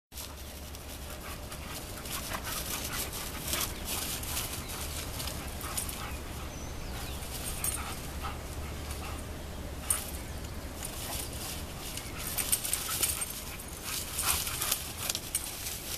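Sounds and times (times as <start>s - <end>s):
dogs scuffling: 0.2s - 15.9s.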